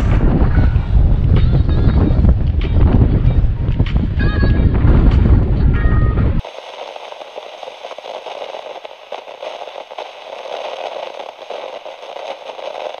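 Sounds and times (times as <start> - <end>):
crackling static: 6.4 - 13.0.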